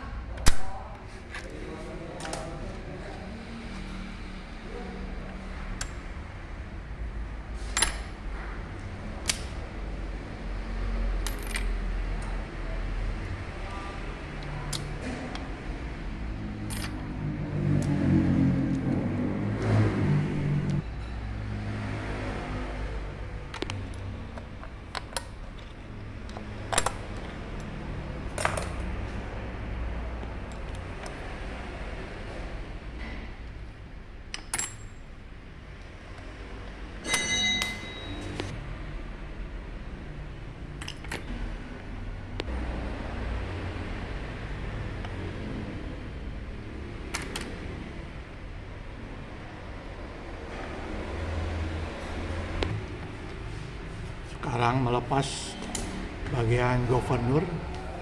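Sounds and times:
small steel parts clinking: 11.2 - 11.8, 16.6 - 17.0, 34.3 - 35.1, 37.0 - 38.5, 40.8 - 41.3
steel parts clinking on metal: 16.6 - 17.0, 37.0 - 38.5
sharp metallic clicks ringing: 37.0 - 38.5.

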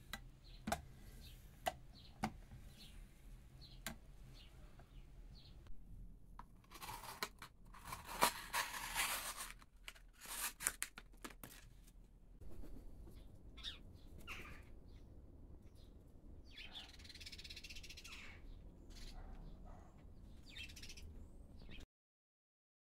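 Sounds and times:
outdoor background: 0.0 - 21.9
bird chirps: 12.5 - 15.1, 15.7 - 21.8.

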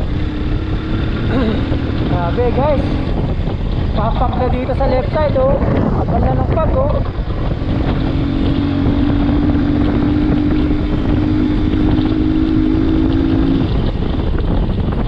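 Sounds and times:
motorcycle engine drone: 0.0 - 15.0
wind rush on microphone: 0.0 - 15.0.

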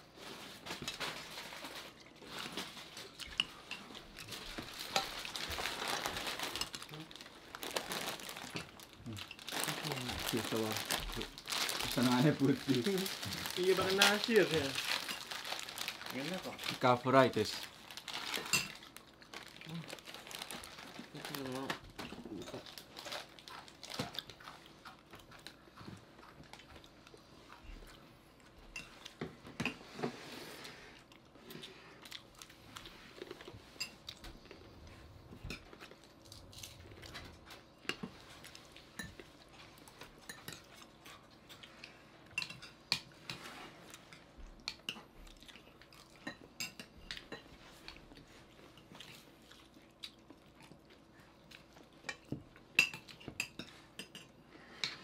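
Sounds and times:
chewing: 22.0 - 29.2, 30.9 - 53.8
cutlery clinking on plates: 52.1 - 55.0.

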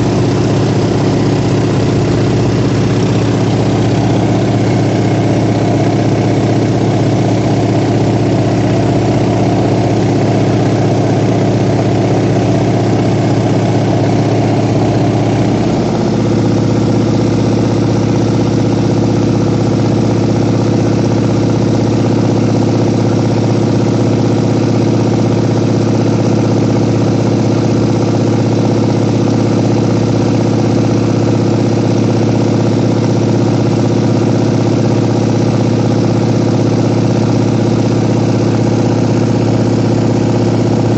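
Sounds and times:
light aircraft engine drone: 0.0 - 27.2.

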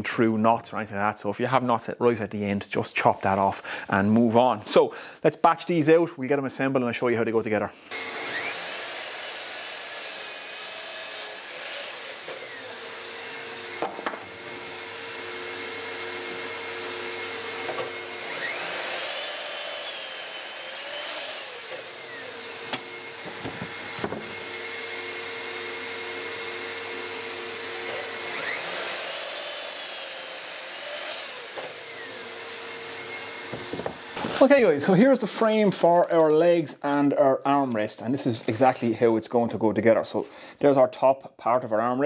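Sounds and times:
shop vacuum humming: 7.9 - 36.5
miter saw cutting wood: 7.9 - 36.6
boards knocking: 13.8 - 14.3, 22.7 - 24.4, 33.5 - 34.4.

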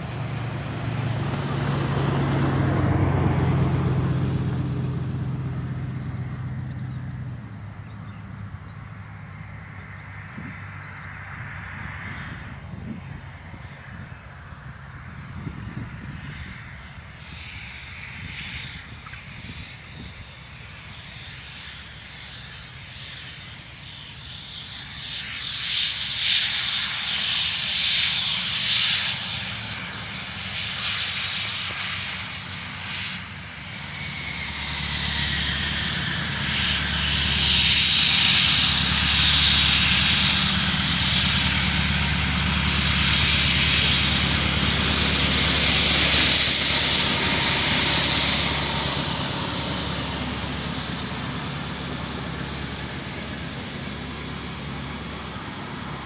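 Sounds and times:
jet engines whining: 0.0 - 56.0.

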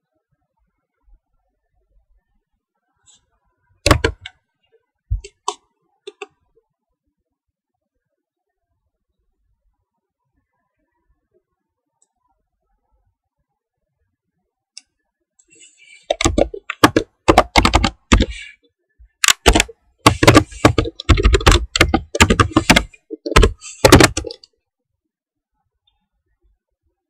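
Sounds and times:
computer keyboard typing: 3.9 - 4.3, 16.0 - 18.5, 19.2 - 24.5.

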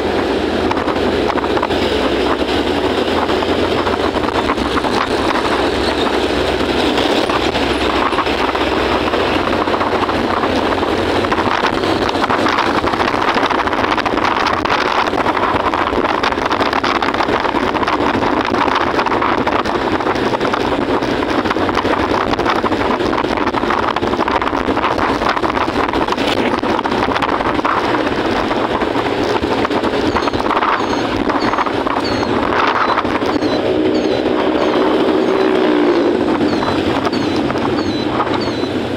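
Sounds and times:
scooter engine tyre and wind noise: 0.0 - 38.9.

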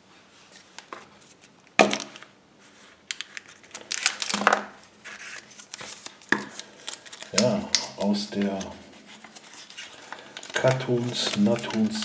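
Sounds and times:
plastic wrapper crinkling: 3.0 - 12.0.

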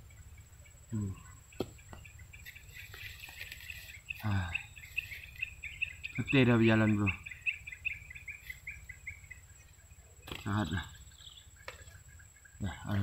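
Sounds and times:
birds chirping: 0.0 - 13.0
high insect drone: 0.0 - 13.0.

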